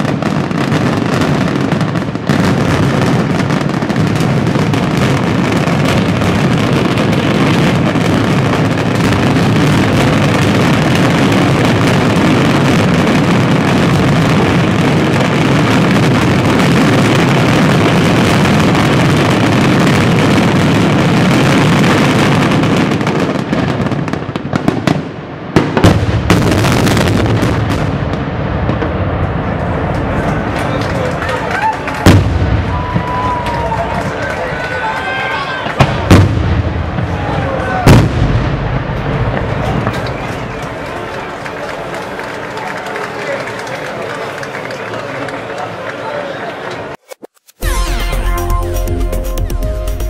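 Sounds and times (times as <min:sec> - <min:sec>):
loud firework bangs: 0:00.0 - 0:45.5
fireworks bursting and crackling: 0:00.0 - 0:46.2, 0:46.8 - 0:50.0.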